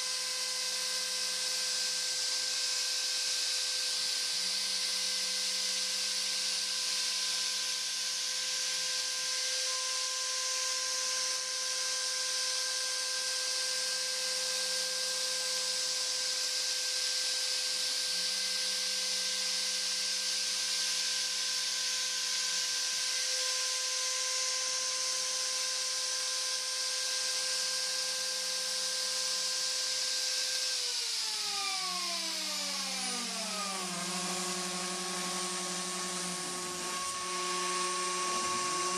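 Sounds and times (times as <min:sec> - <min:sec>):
router spindle hissing and whining: 0:00.0 - 0:38.9
axis motors humming: 0:32.4 - 0:38.9.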